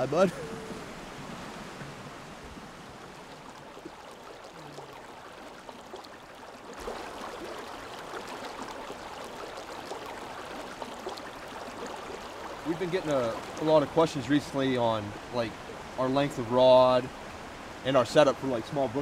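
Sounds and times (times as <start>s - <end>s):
stream water over stones: 0.0s - 19.0s.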